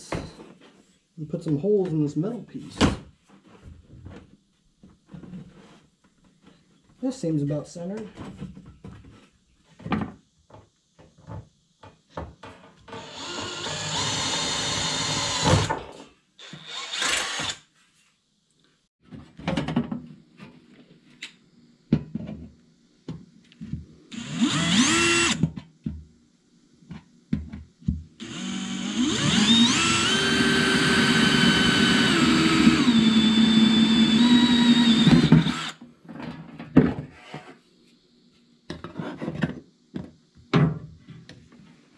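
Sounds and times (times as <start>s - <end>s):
power drill boring metal: 12.9s - 15.7s, 16.4s - 17.6s, 24.1s - 25.4s, 28.2s - 35.8s.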